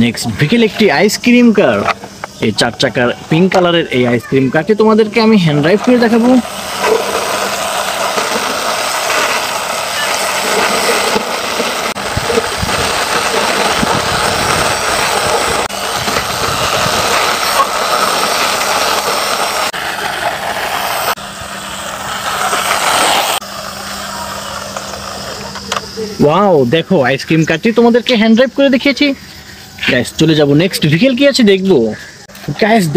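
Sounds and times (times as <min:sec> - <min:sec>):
plastic toy wheels rolling on concrete: 0:00.5 - 0:26.2.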